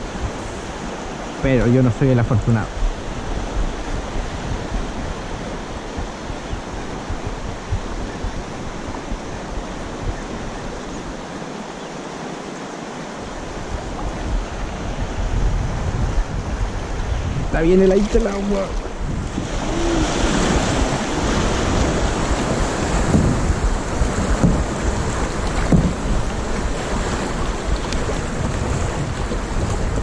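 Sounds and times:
wind rumbling on microphone: 0.0s - 30.0s
river rushing over stones: 9.8s - 16.0s, 16.6s - 30.0s.

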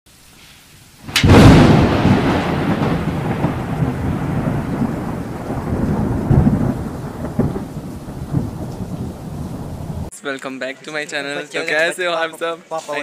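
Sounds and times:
rain: 0.1s - 10.1s
thunder crack and rumble: 1.1s - 10.1s.

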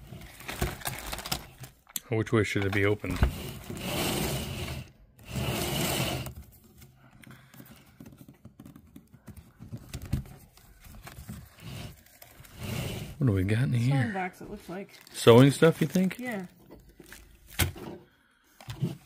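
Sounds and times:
wicker creaking: 2.7s - 6.4s, 11.4s - 13.3s
wicker basket scraping on table: 3.1s - 6.4s, 11.5s - 13.3s.

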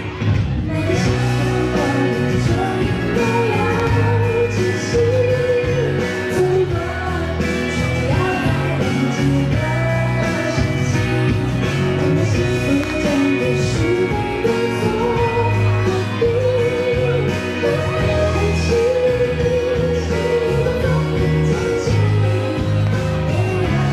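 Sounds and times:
backing band playing: 0.0s - 23.9s
woman singing pop song: 0.0s - 23.9s.

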